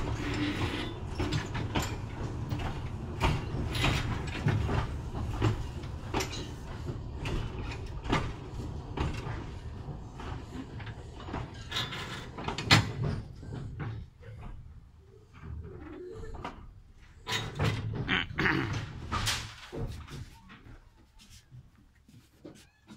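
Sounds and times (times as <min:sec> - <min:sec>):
railway carriage rumbling on track: 0:00.0 - 0:15.0
clanks and knocks from wheels: 0:00.0 - 0:20.7.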